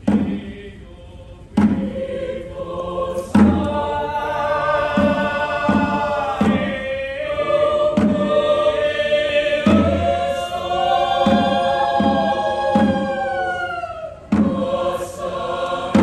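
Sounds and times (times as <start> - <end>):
mixed choir chanting: 0.0 - 16.0
hand drum beat: 1.6 - 2.0, 3.3 - 3.9, 9.5 - 16.0.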